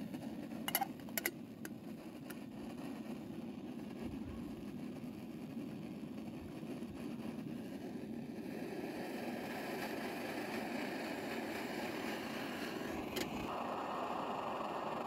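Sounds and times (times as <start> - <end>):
camp stove burning with hiss: 0.0 - 15.0
kettle clinking on burner: 0.6 - 1.8.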